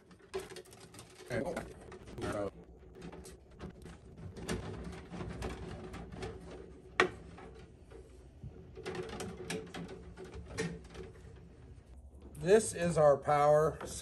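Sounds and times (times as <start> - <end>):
wiring and zip ties rustling: 0.0 - 12.8.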